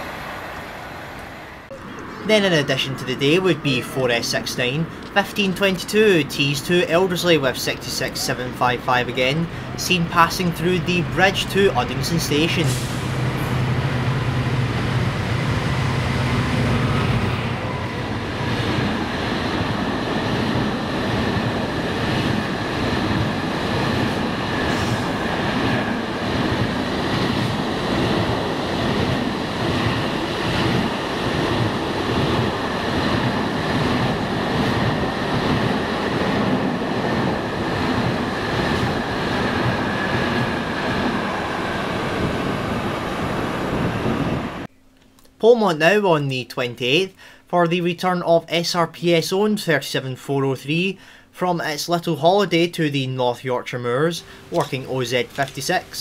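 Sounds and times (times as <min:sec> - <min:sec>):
locomotive engine droning: 0:05.8 - 0:44.7.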